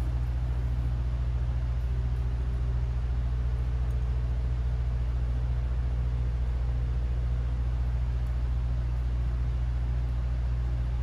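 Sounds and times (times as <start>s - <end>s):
machine hum with fast pulse: 0.0s - 11.0s.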